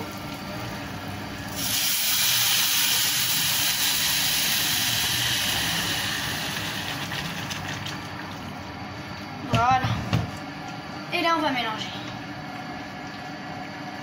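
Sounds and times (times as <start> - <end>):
hot pan hissing and sizzling: 1.5 - 7.8
water pouring into saucepan: 1.5 - 8.5.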